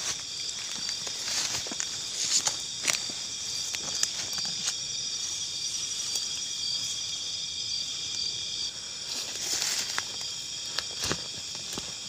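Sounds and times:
footsteps rustling through tall grass: 0:00.0 - 0:07.0, 0:09.1 - 0:12.0
crickets and insects trilling: 0:00.0 - 0:12.0.

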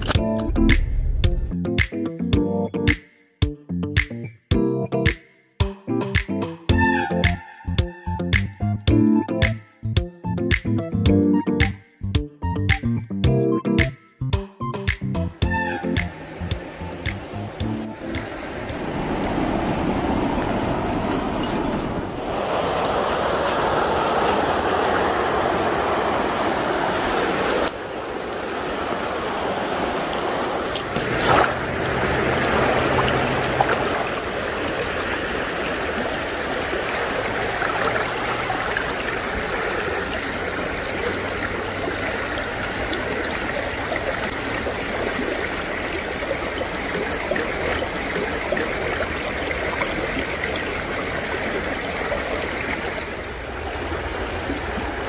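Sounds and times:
creek running over rocks: 0:15.4 - 0:55.0
water splash: 0:15.8 - 0:55.0.

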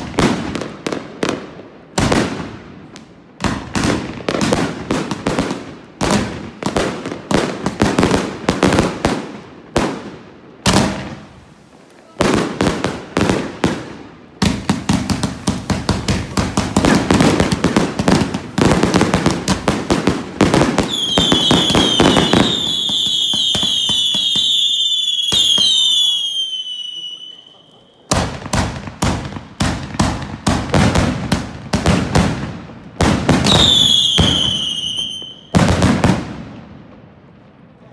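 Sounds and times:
fireworks bangs: 0:00.0 - 0:37.9
fireworks whistles falling in pitch: 0:20.8 - 0:28.5, 0:33.4 - 0:35.5.

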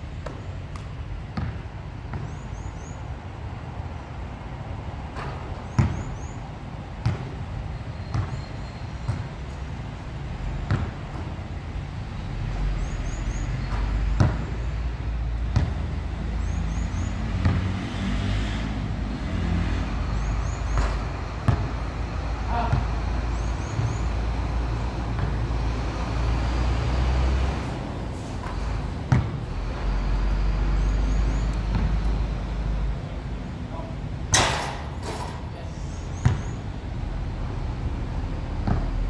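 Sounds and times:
basketball bouncing on hard court: 0:01.3 - 0:02.4, 0:05.7 - 0:06.1, 0:07.0 - 0:07.3, 0:08.0 - 0:09.3, 0:10.6 - 0:11.3, 0:13.6 - 0:14.5, 0:15.5 - 0:16.0, 0:20.7 - 0:21.8, 0:29.1 - 0:29.4, 0:36.2 - 0:36.6
ball striking backboard and rim: 0:01.4 - 0:02.4, 0:05.2 - 0:06.1, 0:15.5 - 0:15.9, 0:17.4 - 0:17.7, 0:20.7 - 0:21.7, 0:36.2 - 0:36.6.

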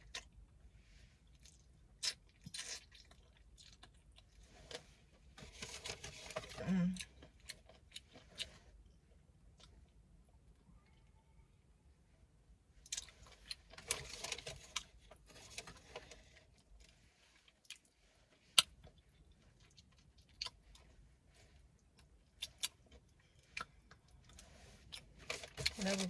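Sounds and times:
wet chewing: 0:01.3 - 0:04.8, 0:17.4 - 0:21.0.

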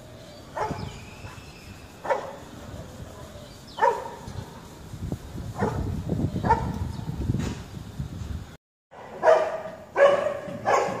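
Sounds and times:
dog barking: 0:00.6 - 0:00.9, 0:02.0 - 0:02.4, 0:03.8 - 0:04.3, 0:05.6 - 0:06.7, 0:08.9 - 0:11.0.

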